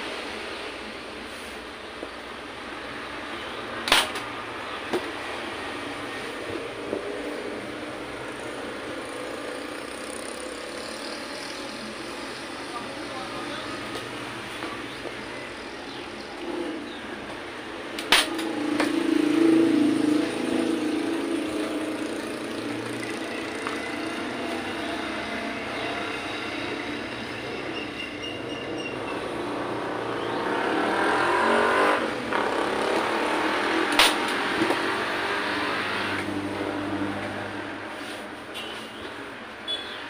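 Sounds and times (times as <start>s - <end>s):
vehicle engine: 0.0s - 39.8s.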